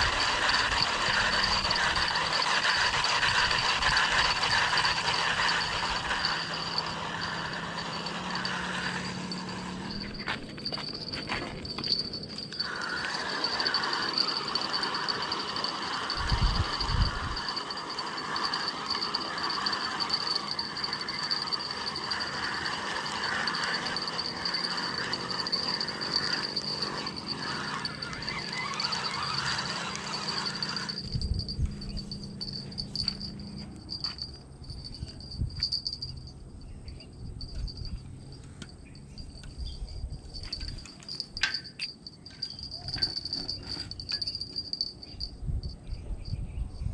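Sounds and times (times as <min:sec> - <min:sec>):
insects droning: 0:00.0 - 0:46.9
chorus of chirping: 0:11.9 - 0:46.9.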